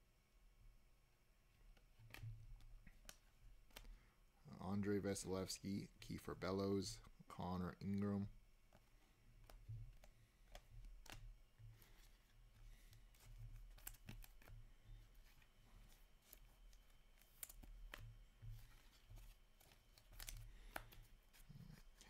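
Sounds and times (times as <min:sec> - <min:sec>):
cards clicking: 0:08.7 - 0:14.5, 0:15.2 - 0:22.0.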